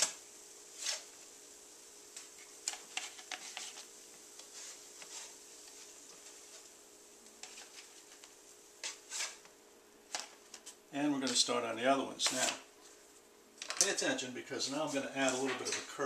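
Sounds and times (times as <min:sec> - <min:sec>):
spatula scraping and tapping griddle: 0:00.0 - 0:01.3, 0:02.1 - 0:11.4, 0:14.8 - 0:16.0
pancakes sizzling on griddle: 0:00.0 - 0:10.9.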